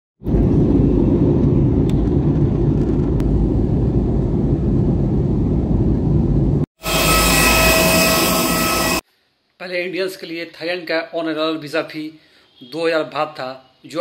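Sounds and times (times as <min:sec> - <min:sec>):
jet engines and airflow rumble: 0:00.2 - 0:06.7.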